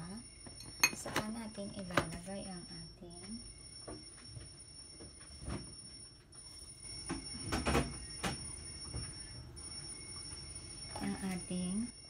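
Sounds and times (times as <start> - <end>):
kitchen utensils knocking and clinking: 0.6 - 2.2.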